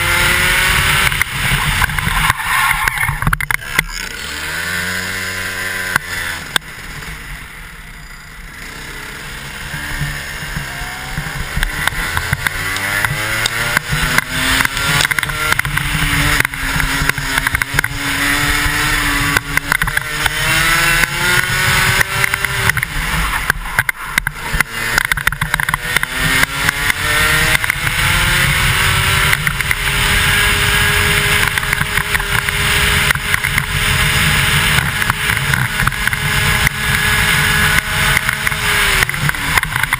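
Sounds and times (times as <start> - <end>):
wind rushing over microphone: 0.0 - 3.8
kart engine revving: 0.0 - 39.9.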